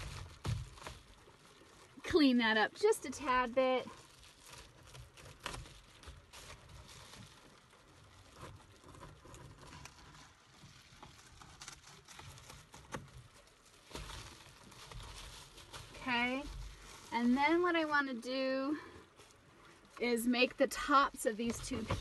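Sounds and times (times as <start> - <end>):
foil insulation crinkling: 0.0 - 22.0.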